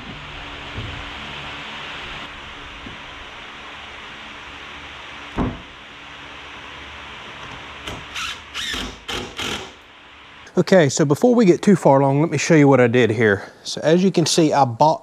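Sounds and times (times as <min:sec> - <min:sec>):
steady hiss: 0:00.0 - 0:15.0
cordless drill driving screws: 0:08.1 - 0:09.8.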